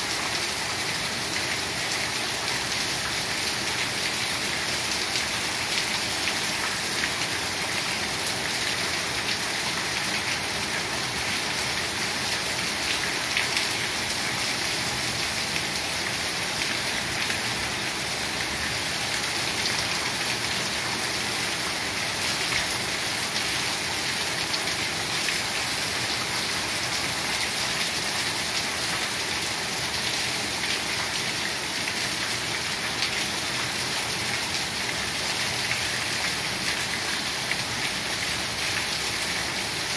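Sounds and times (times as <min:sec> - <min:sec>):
heavy rain falling: 0:00.0 - 0:39.9.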